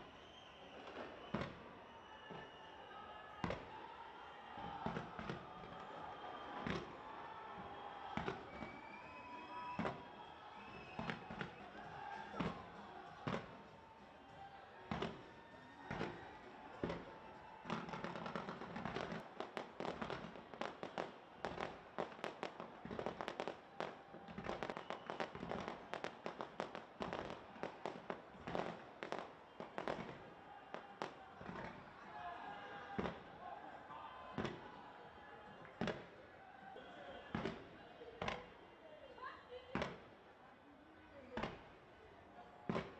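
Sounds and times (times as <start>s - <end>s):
fireworks exploding: 15.9s - 31.8s.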